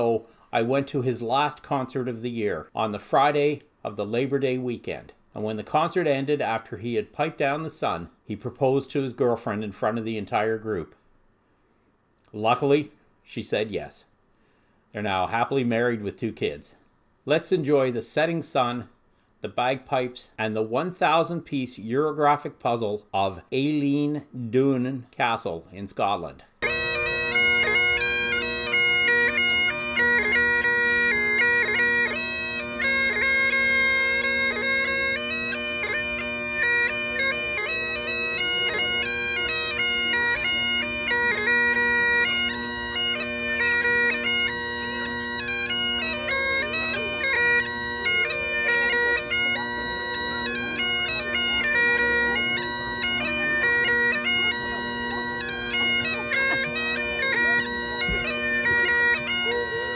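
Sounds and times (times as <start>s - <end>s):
bagpipes playing: 26.6s - 59.9s.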